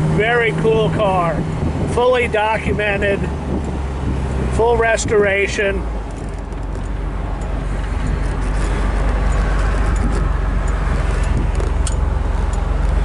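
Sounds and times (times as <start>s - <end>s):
car engine running: 0.0s - 13.0s
wind noise: 0.7s - 13.0s.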